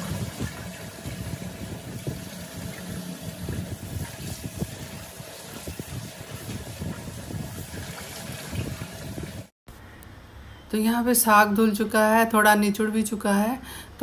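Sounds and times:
tap water running into colander: 0:00.0 - 0:09.5.

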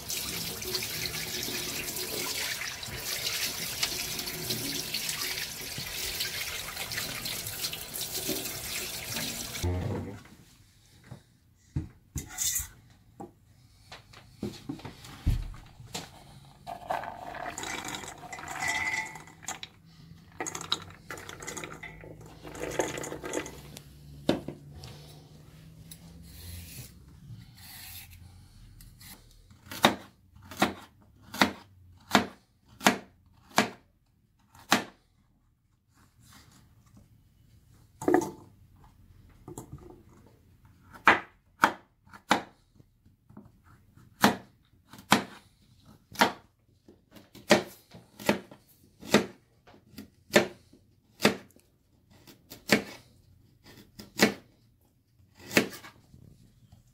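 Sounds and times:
rustling and clattering in pot: 0:14.9 - 0:24.6.

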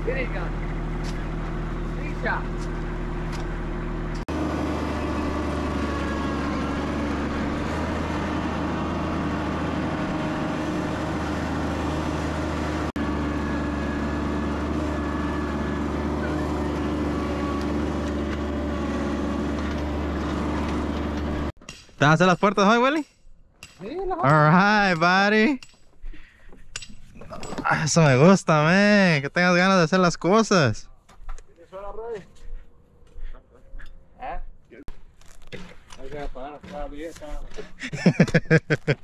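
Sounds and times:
engine running steadily: 0:00.0 - 0:21.6.

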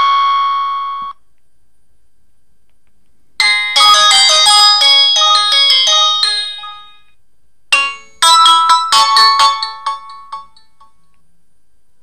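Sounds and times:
bell-like jingle: 0:03.4 - 0:07.0
chiming ringtone melody: 0:03.4 - 0:07.1, 0:07.7 - 0:11.1.

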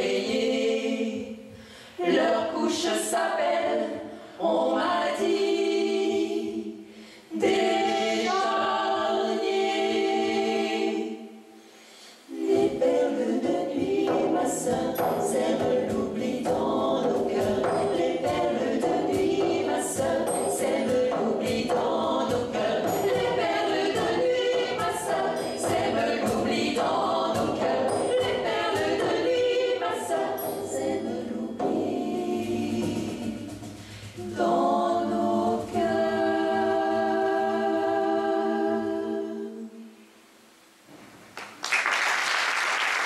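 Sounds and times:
women singing in harmony: 0:00.0 - 0:40.0
cajon and frame drum beat: 0:13.3 - 0:29.4.

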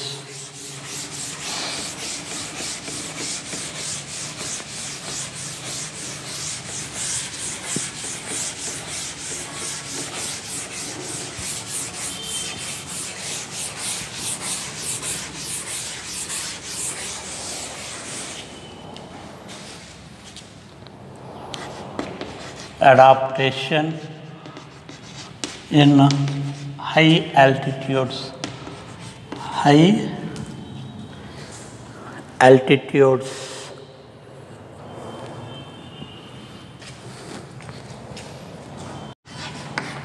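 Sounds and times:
duster rubbing on chalkboard: 0:00.0 - 0:18.6, 0:21.5 - 0:26.9, 0:28.1 - 0:29.6, 0:33.2 - 0:33.8.

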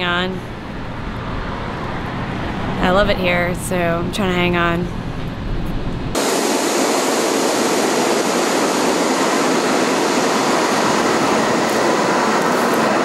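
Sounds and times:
low train rumble: 0:00.0 - 0:13.0
subway train rushing: 0:00.0 - 0:13.0.

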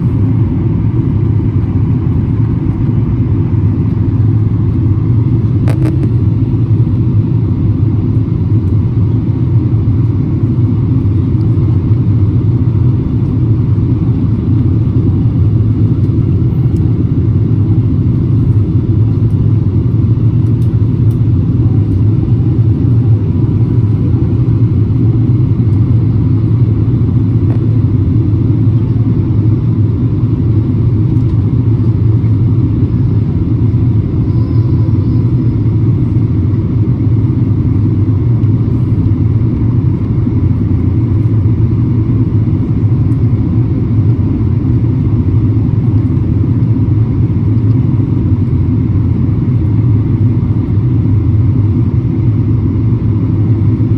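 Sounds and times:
airliner engine and airflow rumble: 0:00.0 - 0:53.9
faint high whine: 0:33.0 - 0:37.7.

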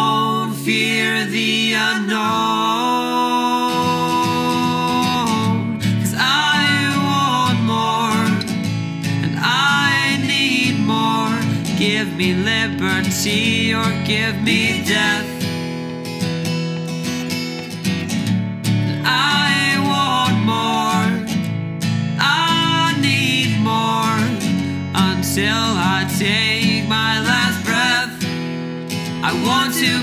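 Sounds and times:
person singing long notes: 0:00.0 - 0:08.4
acoustic guitar: 0:00.0 - 0:30.0.

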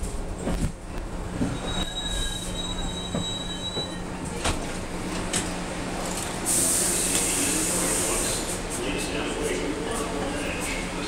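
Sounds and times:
subway train rumble: 0:00.0 - 0:11.0
steel wheels squealing: 0:01.4 - 0:04.1.

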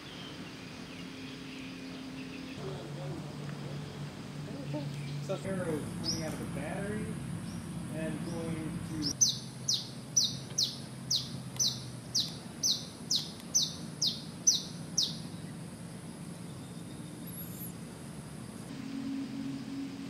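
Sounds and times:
steady low hum: 0:00.0 - 0:20.0
bird calling high notes: 0:18.7 - 0:20.0.

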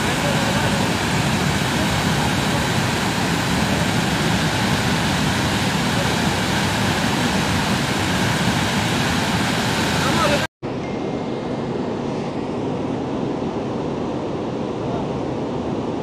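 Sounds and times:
river torrent rushing: 0:00.0 - 0:10.5.

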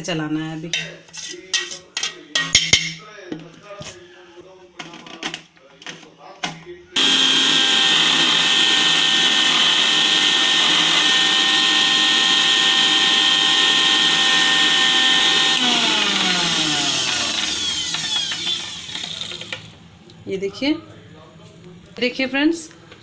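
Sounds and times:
mixer grinder whining: 0:07.0 - 0:19.8.

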